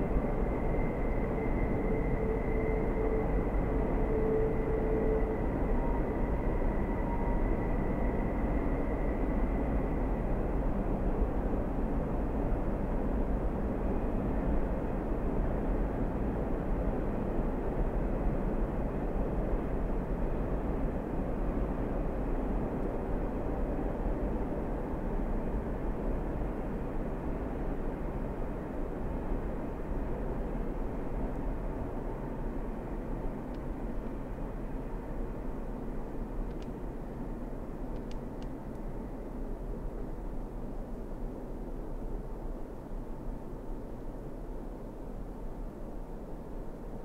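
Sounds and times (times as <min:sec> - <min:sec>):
faint high tone: 0:00.0 - 0:08.9
train rumbling: 0:00.0 - 0:47.0.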